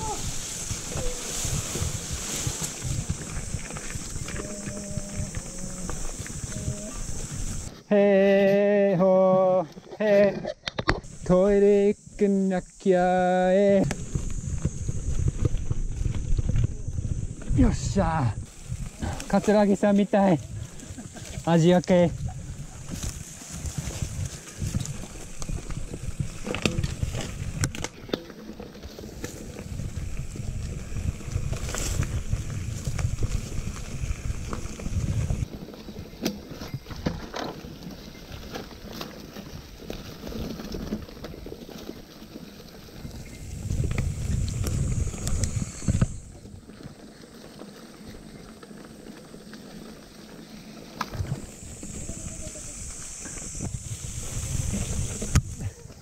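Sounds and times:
wind rumbling on microphone: 0.0 - 7.7, 10.8 - 47.3, 51.0 - 56.0
bike tyres rolling on trail: 0.0 - 56.0
bike knocks and rattles: 22.9 - 50.0.

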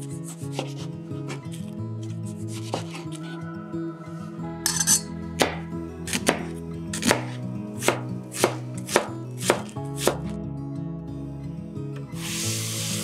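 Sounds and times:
knife chopping onion on board: 0.2 - 1.4, 2.5 - 3.1, 5.4 - 10.3.

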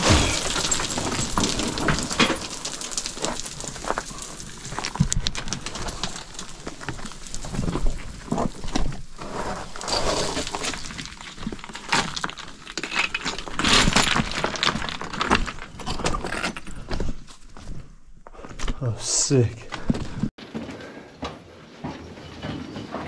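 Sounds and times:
small stones clattering: 0.0 - 17.8
footsteps crunching on rock rubble: 0.0 - 20.4.

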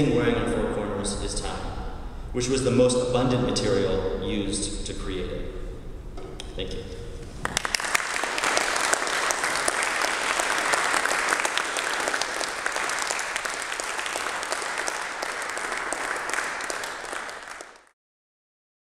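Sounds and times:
audience applauding: 7.4 - 17.9.

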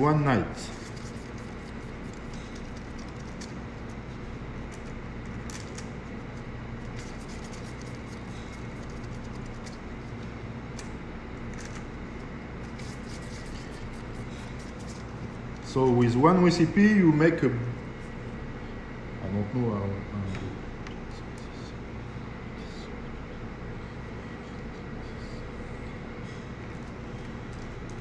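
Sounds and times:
low machine hum: 0.0 - 28.0.

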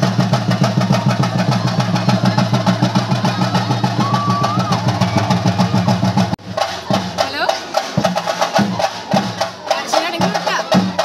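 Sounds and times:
drums playing fast roll: 0.0 - 11.0.

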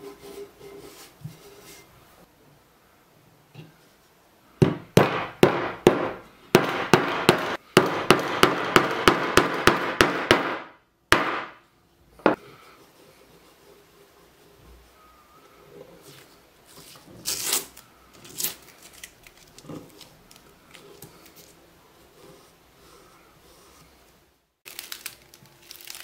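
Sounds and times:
hammer hitting nail: 4.6 - 11.6.

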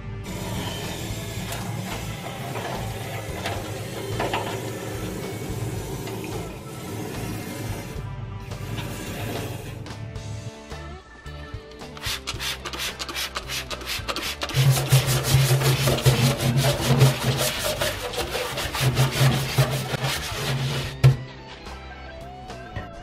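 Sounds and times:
background music: 0.0 - 23.0
scrub brush scrubbing steel floor: 0.3 - 8.0, 12.0 - 21.2.

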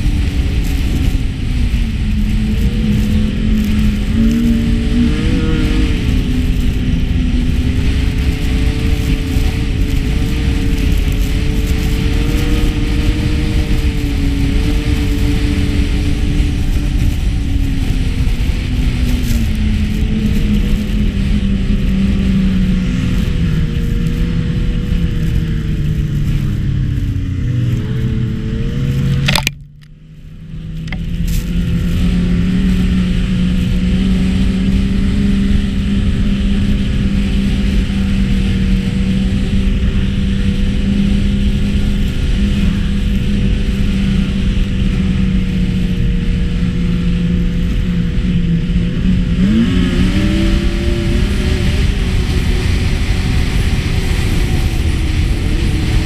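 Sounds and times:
snowmobile engine drone: 0.0 - 56.0
sharp click: 29.2 - 29.9.

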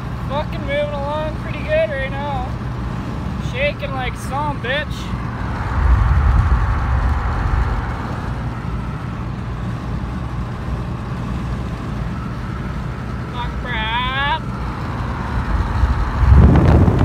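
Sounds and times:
truck cab road and engine noise: 0.0 - 17.0
heavy low rumble: 4.7 - 11.0, 14.3 - 17.0.

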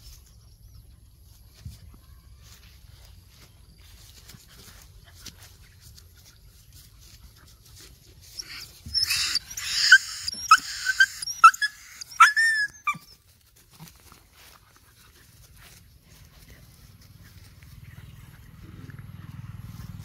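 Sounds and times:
dog yelping: 8.3 - 13.2
dogs snarling: 8.4 - 12.7.

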